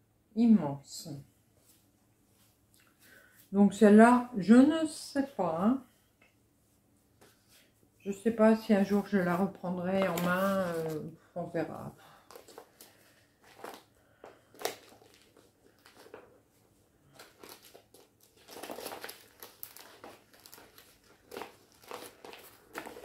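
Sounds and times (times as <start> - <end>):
plastic sleeve crinkling: 8.8 - 11.1, 12.3 - 23.0.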